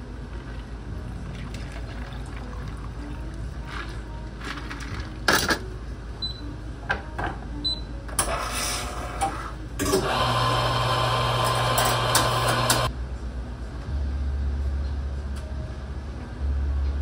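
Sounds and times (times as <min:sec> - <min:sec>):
espresso grinder running: 0:09.9 - 0:12.9.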